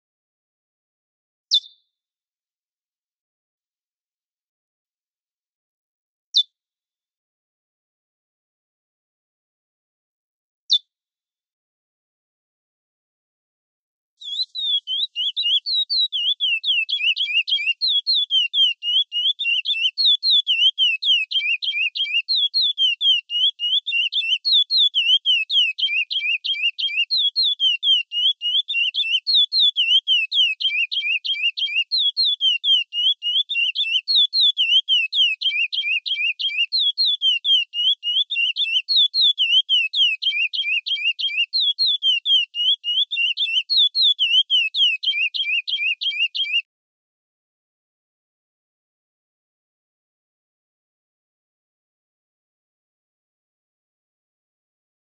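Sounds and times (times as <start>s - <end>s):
finch singing whistled notes: 1.5s - 1.8s, 14.2s - 46.7s.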